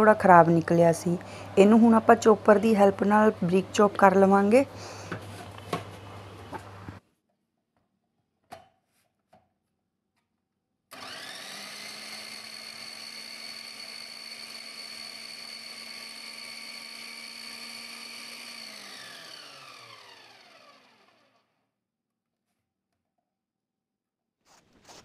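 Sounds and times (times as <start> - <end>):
food chopper motor whine: 10.9 - 21.6.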